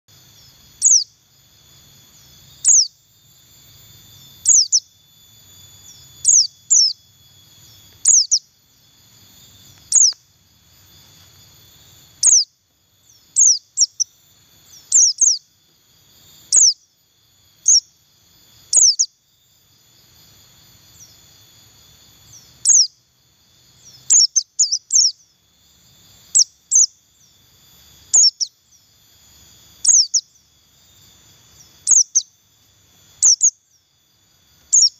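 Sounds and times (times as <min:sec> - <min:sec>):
bird giving high chirps: 0:00.8 - 0:01.1, 0:02.6 - 0:03.0, 0:04.2 - 0:05.0, 0:05.8 - 0:08.5, 0:09.6 - 0:10.3, 0:12.2 - 0:12.5, 0:13.1 - 0:15.5, 0:16.5 - 0:16.8, 0:18.7 - 0:19.1, 0:23.8 - 0:25.2, 0:28.2 - 0:28.6, 0:29.8 - 0:30.3, 0:31.8 - 0:32.3, 0:33.2 - 0:33.6.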